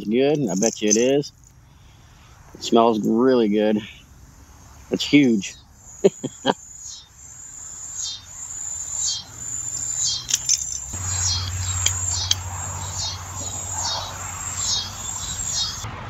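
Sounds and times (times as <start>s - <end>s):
insects calling: 0.0s - 15.8s
sharp clicks: 9.1s - 12.5s.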